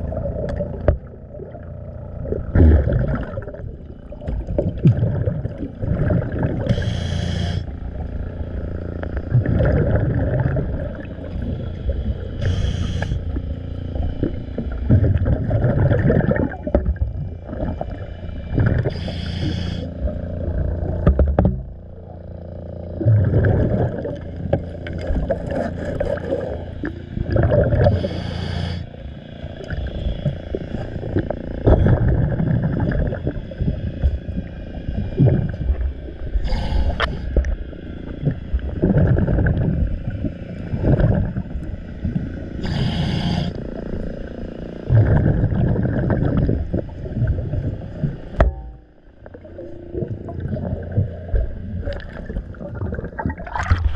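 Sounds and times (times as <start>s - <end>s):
gurgle of exhaled bubbles: 0.0s - 28.8s, 29.5s - 44.2s, 44.8s - 53.9s
regulator inhalation hiss: 6.7s - 7.7s, 12.4s - 13.3s, 18.8s - 19.9s, 28.0s - 28.9s, 36.4s - 37.4s, 42.6s - 43.6s.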